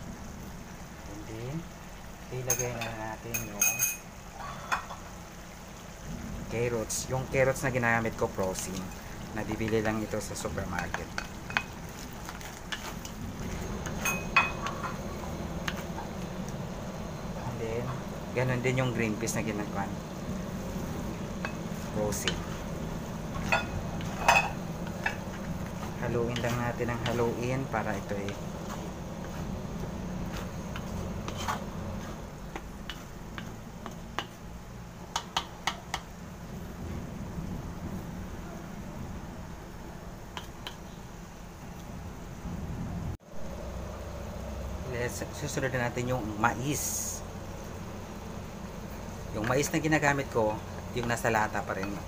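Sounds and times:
low steady hum: 0.0 - 52.0
wooden spatula stirring in pan: 6.9 - 36.9
spatula knocking against pan: 35.1 - 36.1.

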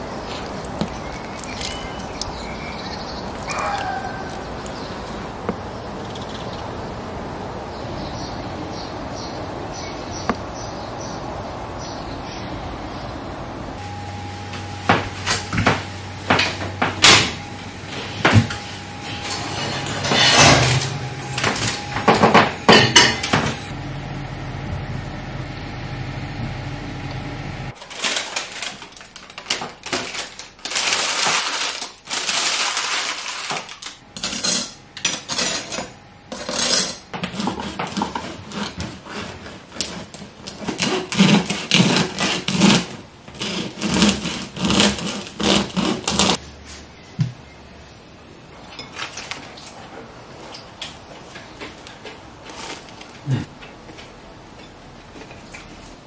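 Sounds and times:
steady hum: 12.4 - 27.8
cookware clattering: 22.1 - 23.5
bread knife sawing crusty loaf: 36.4 - 46.4.

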